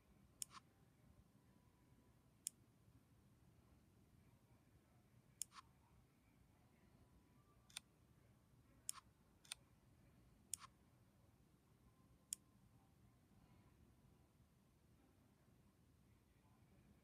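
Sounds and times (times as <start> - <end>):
faint room hiss: 0.0 - 17.0
fingertip tapping touchscreen: 0.4 - 0.7, 5.4 - 5.7, 10.5 - 10.8.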